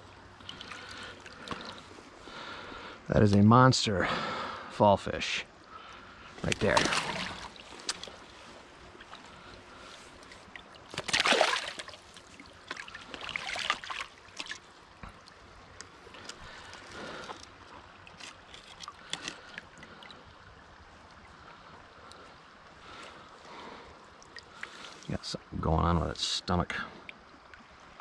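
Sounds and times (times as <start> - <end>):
river water splashing: 0.0 - 4.7, 5.5 - 25.6.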